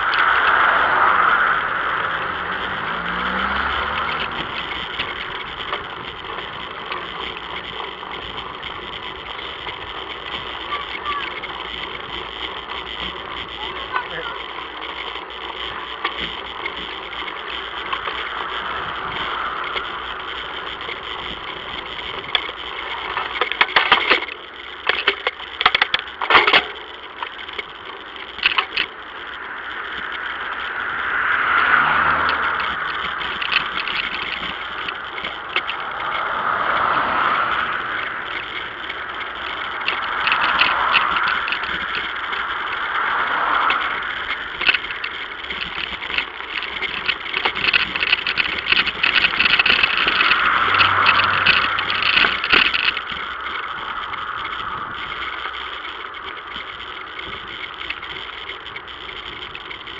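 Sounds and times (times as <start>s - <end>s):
road noise: 0.0s - 59.9s
sharp rattling clicks: 0.0s - 59.9s.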